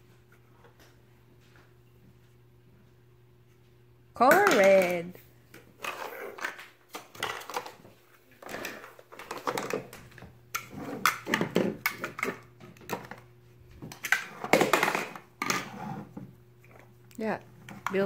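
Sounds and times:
plastic blocks clacking: 0:08.4 - 0:10.0.

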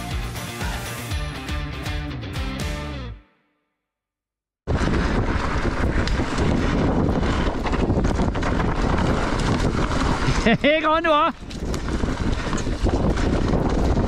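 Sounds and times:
bike rattling over rough ground: 0:04.7 - 0:14.0
wind buffeting microphone: 0:04.7 - 0:14.0.

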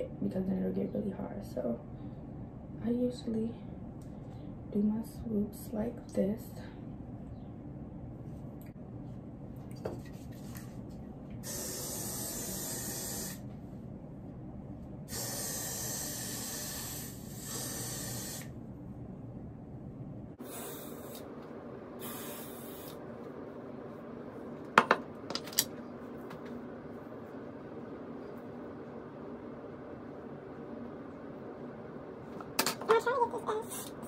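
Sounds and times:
aerosol spray hissing: 0:11.4 - 0:13.4, 0:15.1 - 0:18.5, 0:20.4 - 0:21.2, 0:22.0 - 0:23.0.

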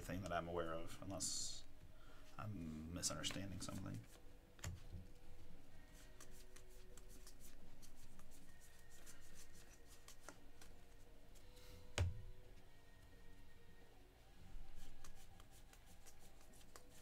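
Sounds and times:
trading cards rustling and clicking: 0:09.0 - 0:10.8.

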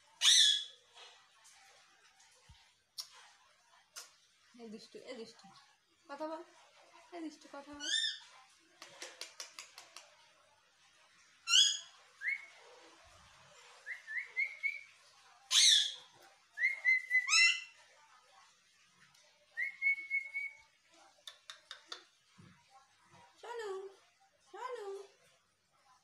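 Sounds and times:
parakeet clicks: 0:08.8 - 0:10.1, 0:21.2 - 0:22.1
parakeet whistling: 0:13.9 - 0:14.8, 0:16.6 - 0:17.6.

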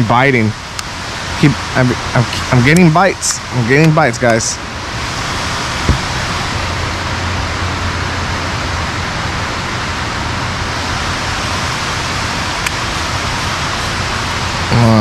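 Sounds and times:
steady rushing hiss: 0:00.0 - 0:15.0
dull knock: 0:05.9 - 0:06.2.

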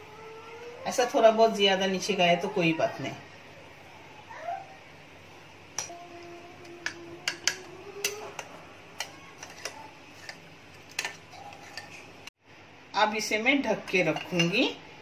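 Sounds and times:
metal spoon clinking against dish: 0:05.7 - 0:06.0, 0:06.7 - 0:12.0.

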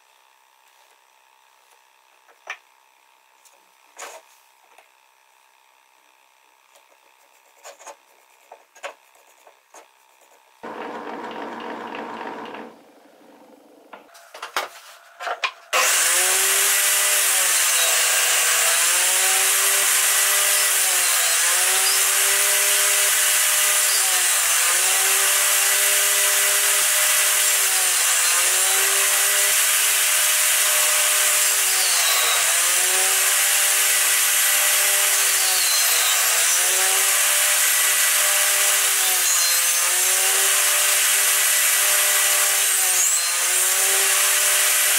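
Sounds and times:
table saw running: 0:10.6 - 0:14.2, 0:15.7 - 0:44.9.

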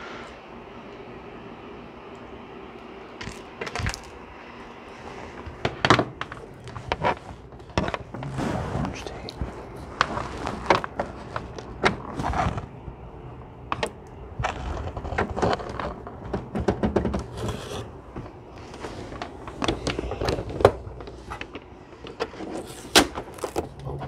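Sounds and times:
paper rustling: 0:04.9 - 0:12.7, 0:18.6 - 0:24.0
clicks and knocks on plastic: 0:13.7 - 0:17.5.

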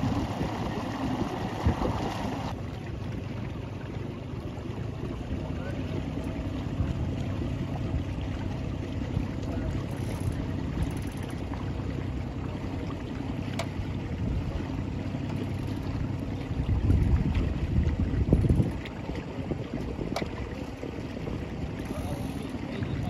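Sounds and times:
wind on microphone: 0:00.0 - 0:02.6, 0:15.8 - 0:23.0
faint engine hum: 0:00.0 - 0:23.0
water rushing past boat: 0:00.0 - 0:23.0.

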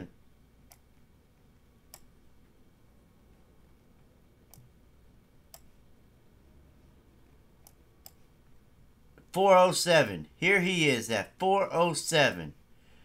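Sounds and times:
computer mouse clicks: 0:00.7 - 0:00.9, 0:04.5 - 0:04.7, 0:05.5 - 0:05.8, 0:07.6 - 0:08.2.

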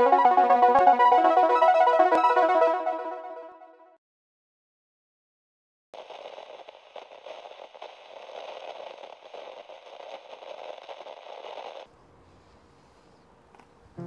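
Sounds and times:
crackling static: 0:06.0 - 0:11.9.

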